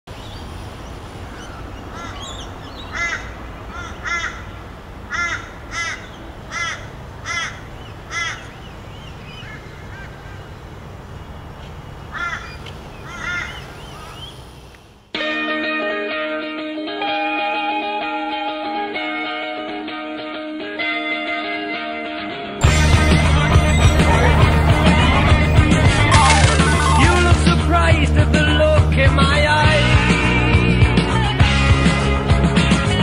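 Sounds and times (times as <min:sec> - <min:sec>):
crow cawing: 0:01.2 - 0:08.6, 0:09.4 - 0:10.5, 0:12.1 - 0:14.2.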